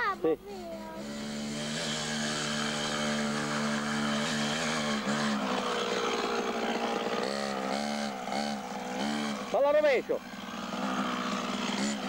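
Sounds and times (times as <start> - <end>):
two-stroke motorcycle engine running: 0.6 - 12.0.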